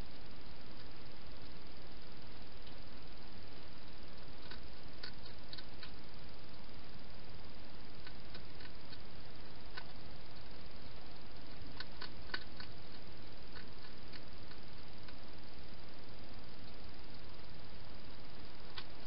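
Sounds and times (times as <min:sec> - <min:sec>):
steady hiss: 0:00.0 - 0:19.0
hedgehog chewing crunches: 0:04.2 - 0:06.0, 0:08.0 - 0:09.1, 0:11.5 - 0:15.2.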